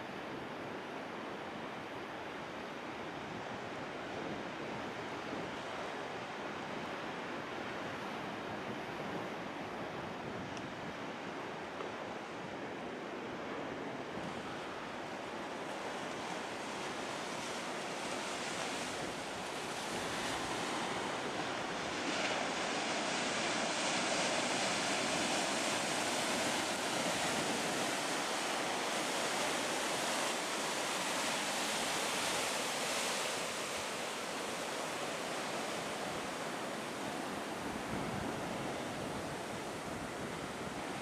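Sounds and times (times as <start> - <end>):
surf breaking and washing: 14.1 - 41.0.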